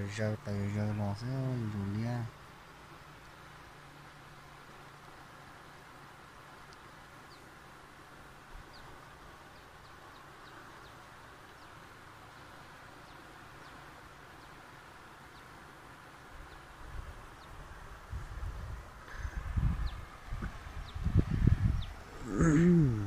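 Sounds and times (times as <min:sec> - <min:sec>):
even outdoor hiss: 0:00.0 - 0:23.0.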